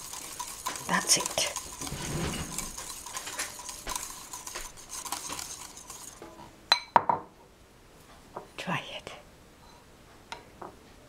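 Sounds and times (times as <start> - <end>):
utensil stirring in a bowl: 0.0 - 6.6
utensil clinking against bowl: 0.0 - 6.9.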